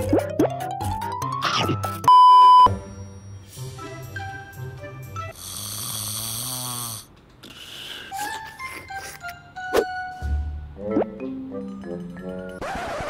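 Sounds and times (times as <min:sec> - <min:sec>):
light background music: 0:00.0 - 0:06.6, 0:07.5 - 0:12.6
loud beep tone: 0:02.1 - 0:02.8
cartoon snoring sound effect: 0:05.3 - 0:08.3.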